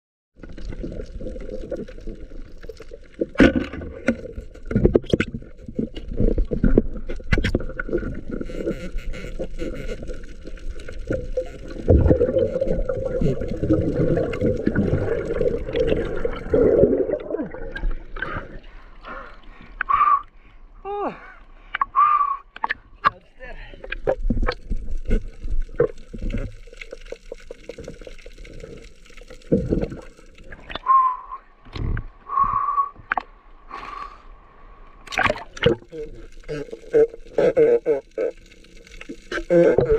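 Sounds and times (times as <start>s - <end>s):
underwater water rushing: 0.4s - 19.0s, 23.8s - 31.2s, 34.6s - 39.9s
knocks and splashes: 35.0s - 35.9s.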